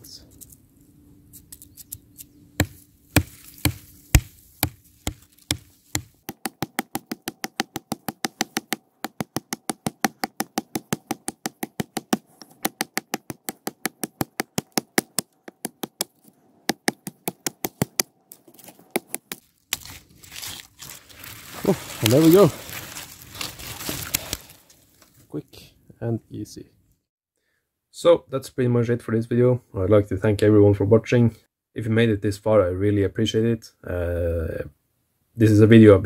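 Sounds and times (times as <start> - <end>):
knife chopping into wood: 2.6 - 18.1, 18.9 - 20.5.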